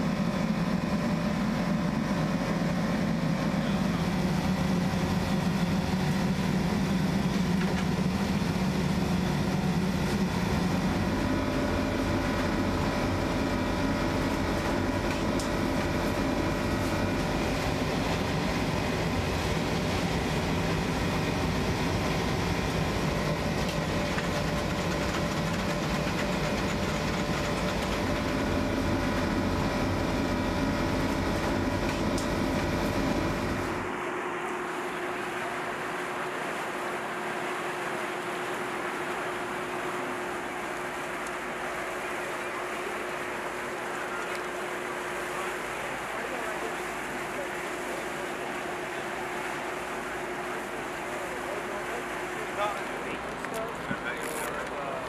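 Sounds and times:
machinery drone: 0:00.0 - 0:55.0.

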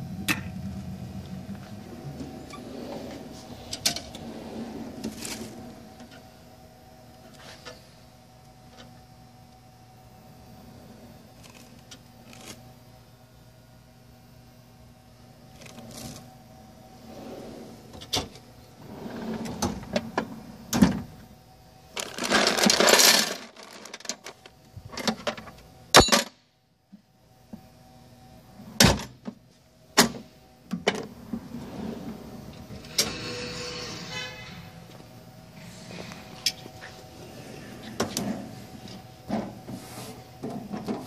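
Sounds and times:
metal drawers sliding: 0:01.6 - 0:06.2, 0:17.0 - 0:21.1, 0:30.9 - 0:39.5
metal clunks of drawers closing: 0:28.8 - 0:29.2.

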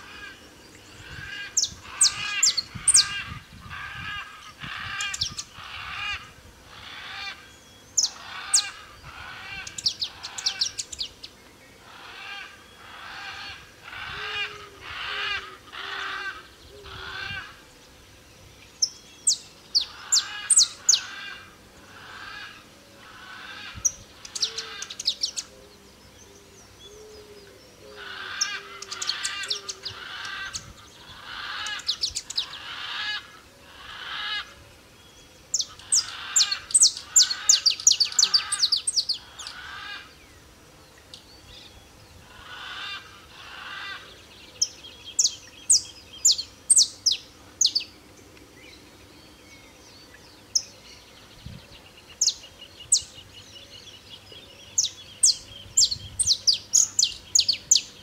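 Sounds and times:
finch singing: 0:00.0 - 0:06.0, 0:07.2 - 0:11.8, 0:18.7 - 0:21.4, 0:23.6 - 0:25.5, 0:28.1 - 0:32.8, 0:35.2 - 0:39.6, 0:43.9 - 0:48.0, 0:48.6 - 0:58.0.

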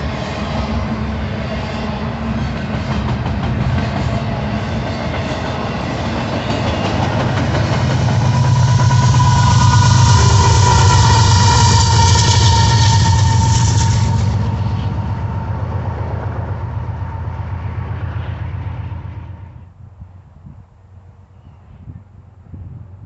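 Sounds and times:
diesel locomotive engine drone: 0:00.0 - 0:23.0.

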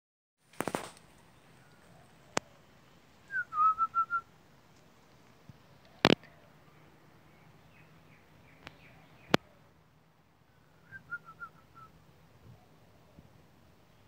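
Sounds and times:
person whistling: 0:03.3 - 0:04.2, 0:10.8 - 0:11.9.

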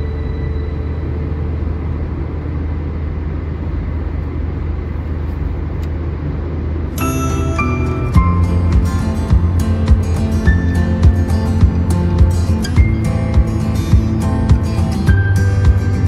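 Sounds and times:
car road and engine rumble: 0:00.0 - 0:16.0
music: 0:07.0 - 0:16.0.

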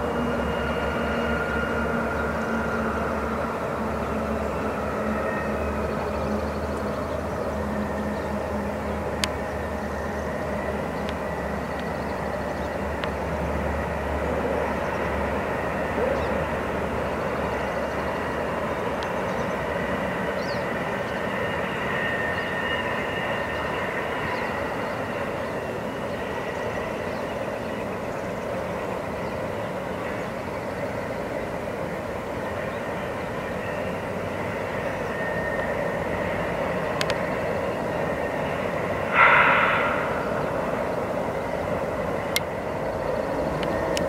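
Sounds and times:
freight train rumble: 0:00.0 - 0:44.0
high whine: 0:38.2 - 0:44.0.

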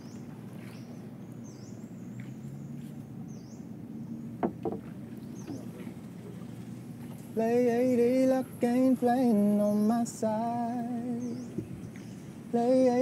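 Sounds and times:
low steady hum: 0:00.0 - 0:13.0
sharp knocks: 0:04.4 - 0:04.9.

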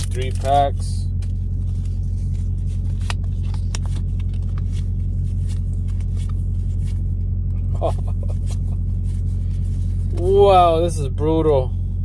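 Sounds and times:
diesel truck engine idling: 0:00.0 - 0:12.0
trading cards flipped by hand: 0:01.1 - 0:07.0, 0:08.3 - 0:10.1.

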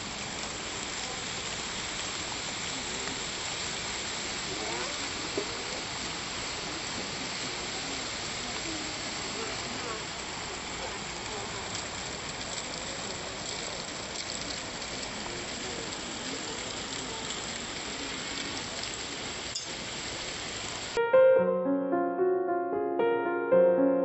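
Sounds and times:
fountain water spraying: 0:00.0 - 0:21.0
gentle piano music: 0:21.0 - 0:24.0.

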